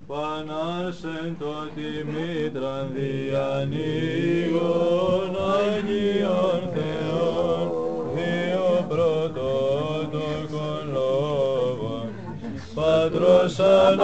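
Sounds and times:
voices chanting: 0.1 - 14.0.

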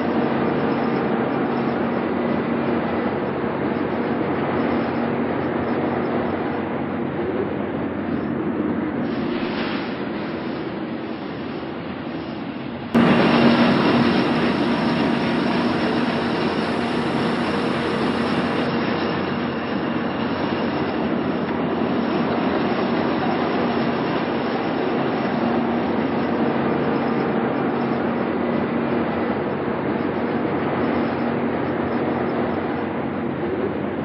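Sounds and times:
combine harvester running: 13.0 - 20.5.

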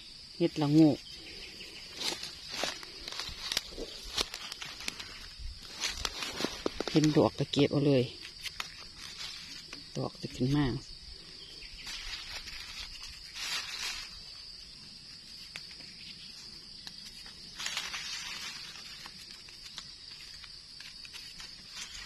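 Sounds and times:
high insect drone: 0.0 - 22.0
dry leaves rustling and crackling: 0.6 - 10.9, 11.8 - 22.0
twigs clicking: 1.9 - 7.6, 8.2 - 10.0, 11.8 - 14.4, 15.3 - 22.0.

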